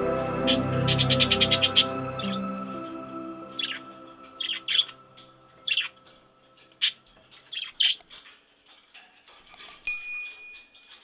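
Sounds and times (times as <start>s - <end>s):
soft background music: 0.0s - 8.6s
parrots chirping: 0.4s - 2.5s, 3.4s - 8.3s
clicks: 7.8s - 8.2s, 9.5s - 10.8s
chime-like ding: 9.6s - 10.9s.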